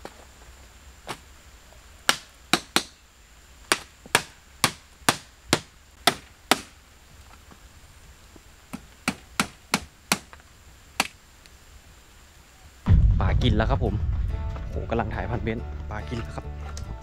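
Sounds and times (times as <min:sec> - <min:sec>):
blade chopping into wood: 0:03.7 - 0:06.8.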